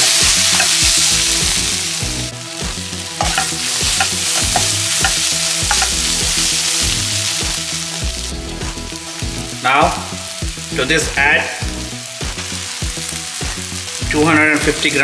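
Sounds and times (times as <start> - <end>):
spatula knocking and scraping pan: 0.0 - 1.0, 3.2 - 6.4
food sizzling in a pan: 0.0 - 15.0.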